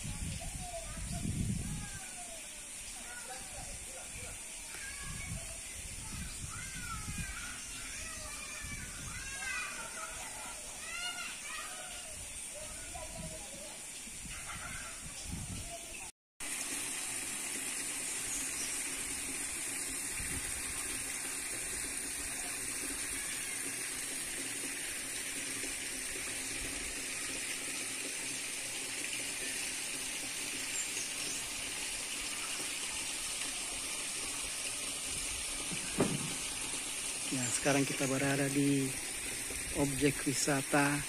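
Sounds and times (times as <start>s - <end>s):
running water: 0.0s - 41.0s
short thump: 35.7s - 36.4s.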